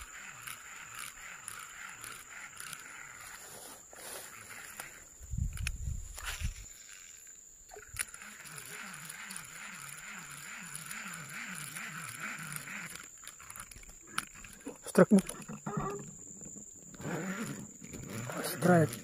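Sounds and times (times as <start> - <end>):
fishing reel gears whirring: 0.0 - 19.0.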